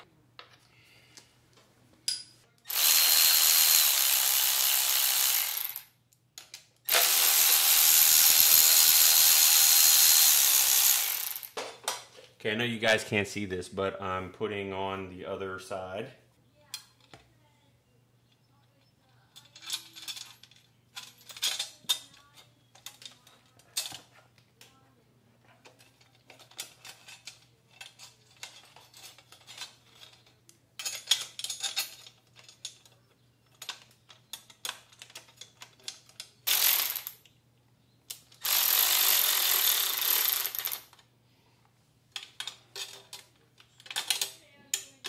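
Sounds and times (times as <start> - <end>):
metal clinks and rattles: 18.3 - 24.8, 25.4 - 37.4, 42.1 - 45.0
ratchet clicking: 36.5 - 37.2, 38.1 - 41.0.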